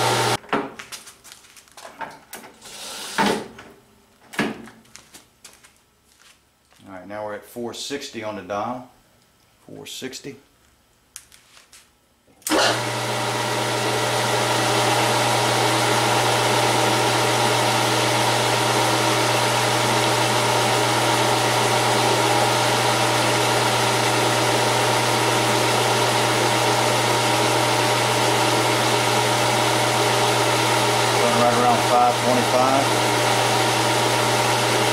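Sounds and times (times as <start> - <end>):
metal lathe running: 12.5 - 34.9.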